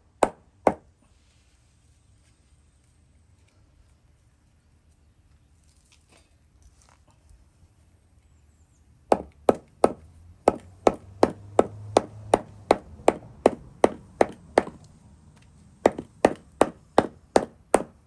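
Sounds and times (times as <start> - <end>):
hammer pounding on wooden block: 0.2 - 0.8, 9.1 - 14.8, 15.8 - 18.0.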